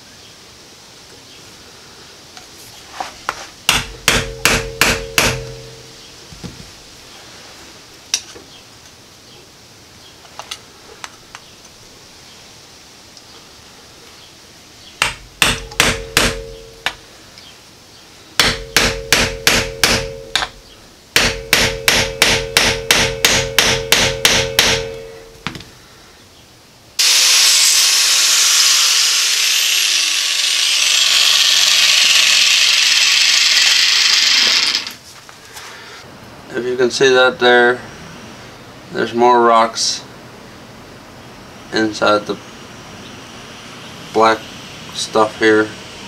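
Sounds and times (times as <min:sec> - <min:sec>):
hammer striking metal: 0:03.7 - 0:05.9, 0:15.0 - 0:17.0, 0:18.4 - 0:25.6.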